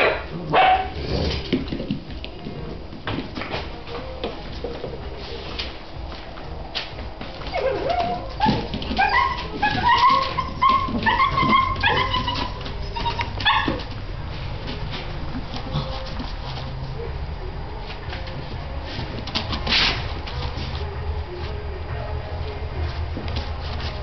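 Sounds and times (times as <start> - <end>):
puppies whining and yipping: 7.4 - 13.9.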